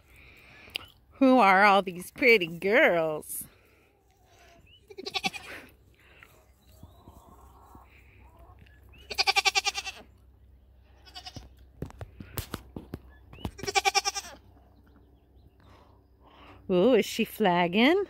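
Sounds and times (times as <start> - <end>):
goats bleating: 4.9 - 5.7, 9.1 - 10.1, 10.9 - 11.4, 13.6 - 14.4.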